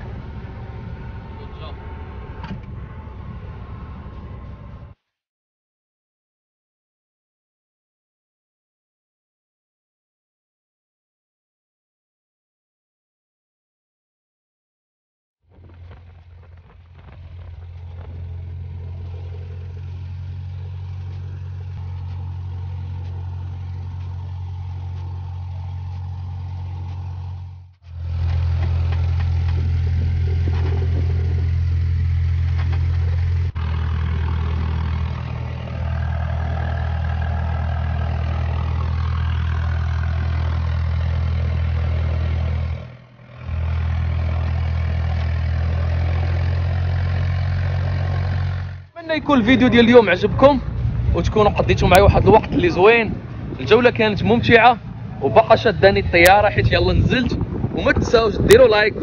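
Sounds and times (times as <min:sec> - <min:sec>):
small plane engine idling: 0:00.0 - 0:05.0, 0:15.5 - 0:59.0.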